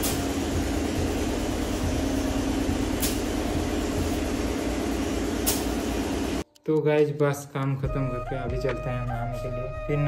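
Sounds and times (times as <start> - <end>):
engine drone: 0.0 - 6.4.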